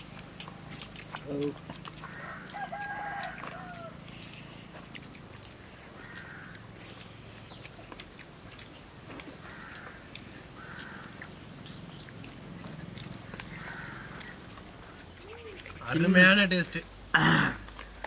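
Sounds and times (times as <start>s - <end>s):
crows cawing: 2.0s - 3.9s, 6.0s - 6.6s, 9.4s - 11.2s, 13.5s - 14.5s.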